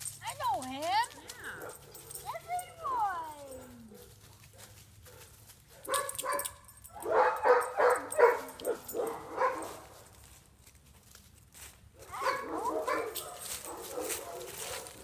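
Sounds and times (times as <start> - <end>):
dog barking: 3.6 - 9.8, 12.0 - 15.0.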